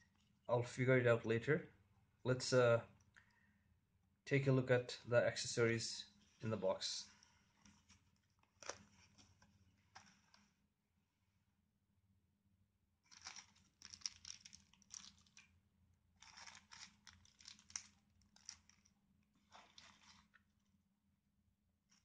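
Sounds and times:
plastic bags crinkling: 7.7 - 9.4, 13.1 - 15.5, 16.2 - 20.4.

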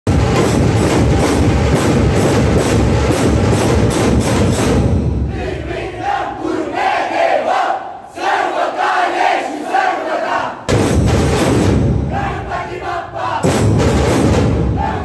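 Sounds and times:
barrel drums playing fast rhythm: 0.0 - 5.2, 13.4 - 14.8
group shouting: 12.1 - 13.4, 14.8 - 15.0.

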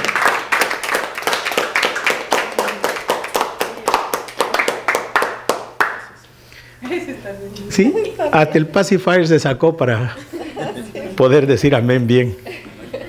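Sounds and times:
crowd clapping: 0.0 - 6.2.

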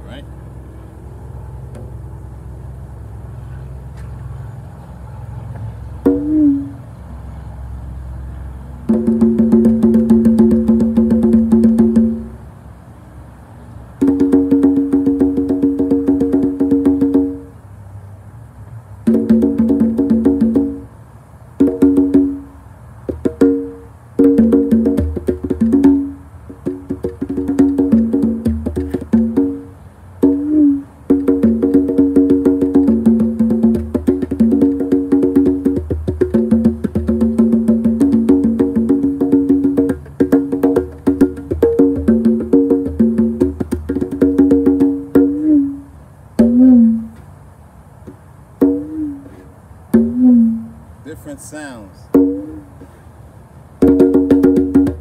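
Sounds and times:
congas played by hand: 6.0 - 6.8, 8.8 - 12.4, 14.0 - 17.5, 19.0 - 20.9, 21.6 - 47.2, 48.0 - 50.8, 52.1 - 53.0, 53.8 - 55.0.

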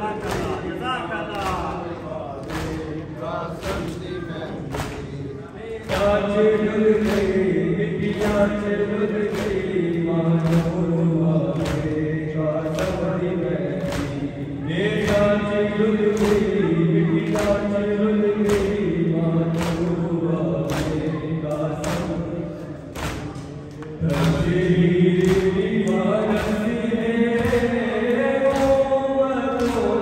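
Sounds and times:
men chanting in unison: 0.0 - 30.0
hands beating chests: 2.4 - 2.9.

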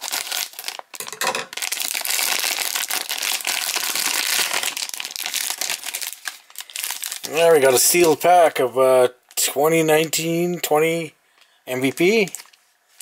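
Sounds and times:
plastic bag crinkling: 0.0 - 8.3, 11.8 - 13.0.

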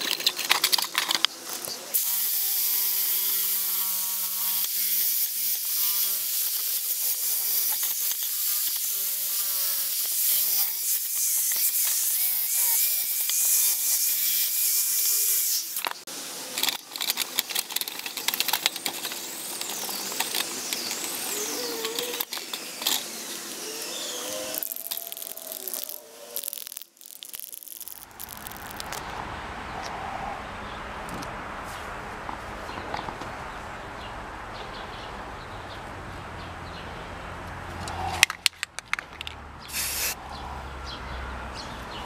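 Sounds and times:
clicks and rubbing of handled saw: 0.0 - 1.8, 15.8 - 23.1
drill with wire brush on metal: 0.0 - 28.8.

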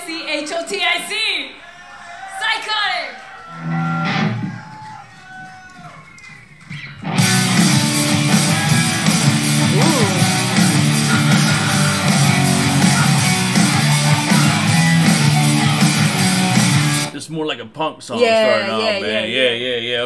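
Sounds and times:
distorted electric guitar: 7.0 - 17.1
live rock band playing: 7.0 - 17.1.

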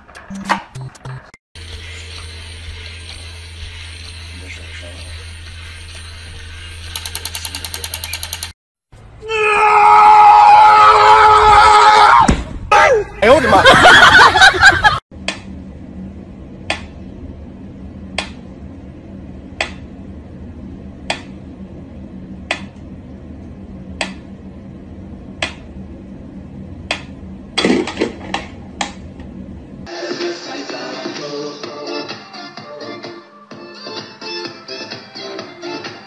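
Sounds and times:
low hum: 0.0 - 8.0, 12.4 - 29.9
quick run of clicks: 6.8 - 8.6.

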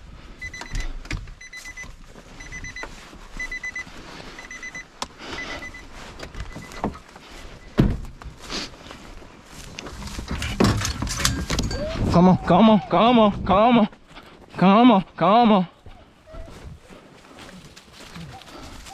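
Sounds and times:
truck door warning chime: 0.4 - 7.0.

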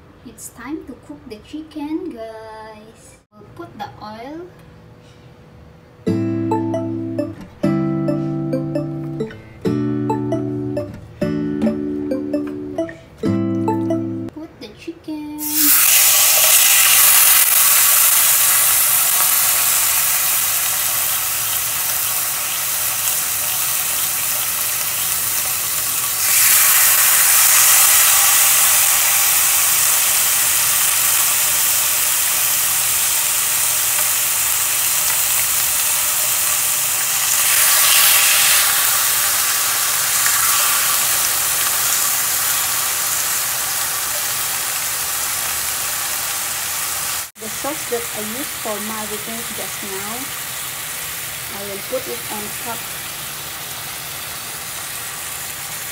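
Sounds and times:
chicken sizzling in hot oil: 15.4 - 55.9.

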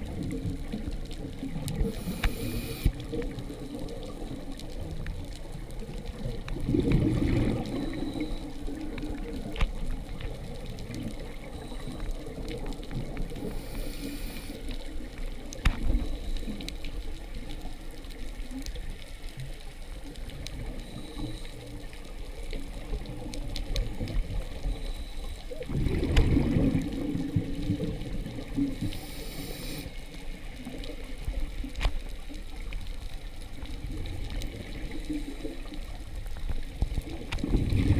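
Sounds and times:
faint clicks: 0.0 - 37.9
underwater wash: 0.0 - 37.9
regulator inhalation hiss: 1.8 - 2.9, 13.4 - 14.7, 28.8 - 30.1
regulator exhaust bubbles gurgling: 6.2 - 8.2.

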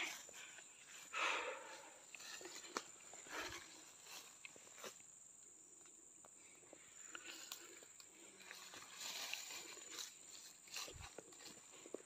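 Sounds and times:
footsteps on dry leaves: 8.4 - 12.0.

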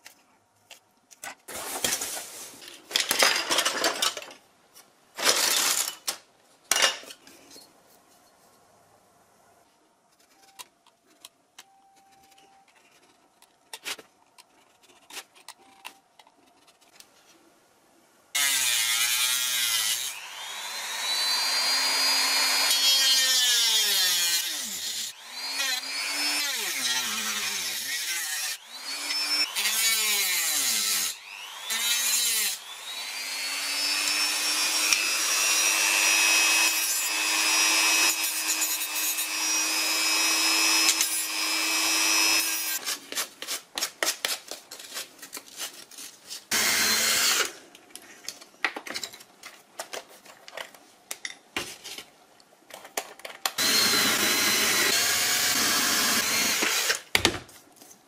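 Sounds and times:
rotary tool whining: 53.6 - 57.0.

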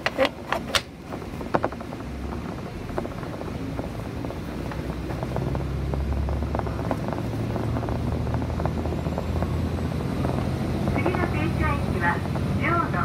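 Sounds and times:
small clicks and rattles: 0.0 - 12.6
railcar engine hum: 0.0 - 13.0.

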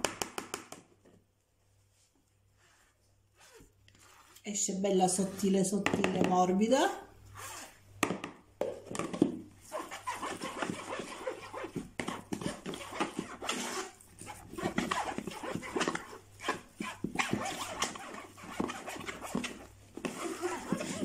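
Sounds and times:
spoon scraping through a sieve: 2.6 - 6.1, 7.3 - 7.8, 9.6 - 21.0.

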